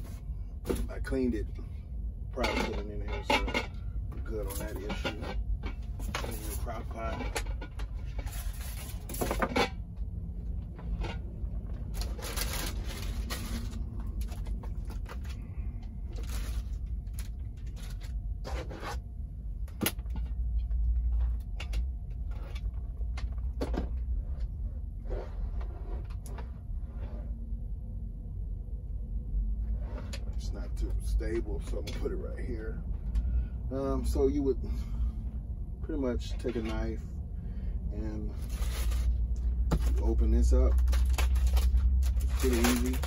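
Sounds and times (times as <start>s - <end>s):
steady low rumble: 0.0s - 43.0s
packaging knocks and rustles: 40.7s - 43.0s.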